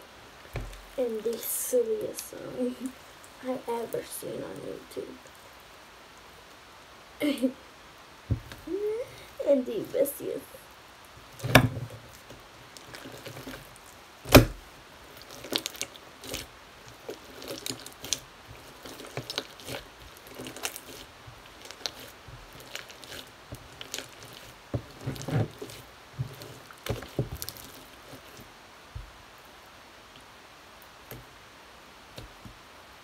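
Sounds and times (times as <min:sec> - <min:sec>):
slime squelching: 0:11.2 - 0:29.1.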